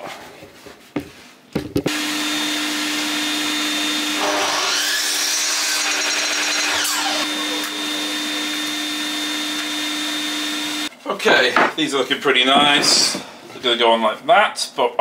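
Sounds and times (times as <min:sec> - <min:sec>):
dust extractor humming: 0:01.9 - 0:10.9
mitre saw cutting wood: 0:01.9 - 0:10.9.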